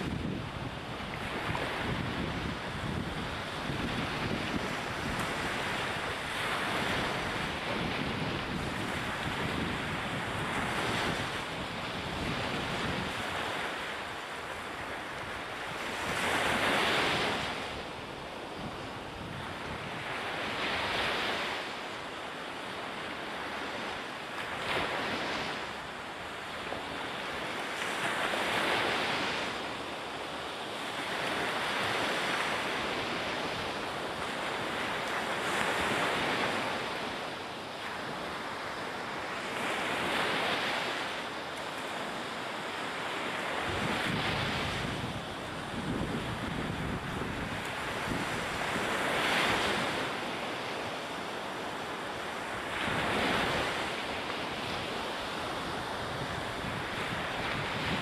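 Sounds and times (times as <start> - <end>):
wind noise: 0.0 - 21.7, 42.8 - 50.5, 52.4 - 58.0
rushing sea water: 0.0 - 58.0.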